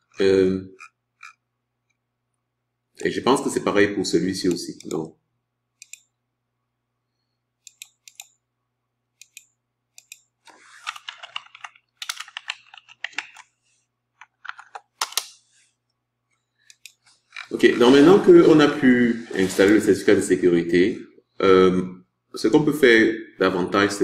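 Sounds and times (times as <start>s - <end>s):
computer keyboard typing: 10.9s - 13.5s
keyboard clicks: 10.9s - 13.5s.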